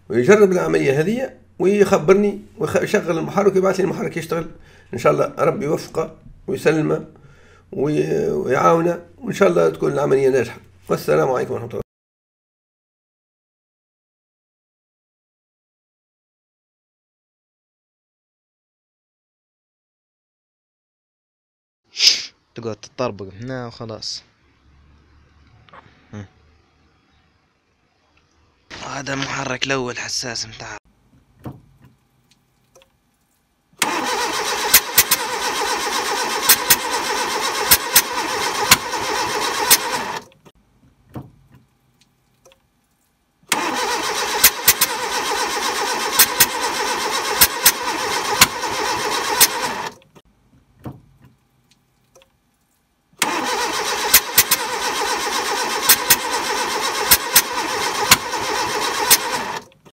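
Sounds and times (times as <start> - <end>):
petrol engine cranking: 33.8 - 40.3, 43.5 - 50.0, 53.2 - 59.9.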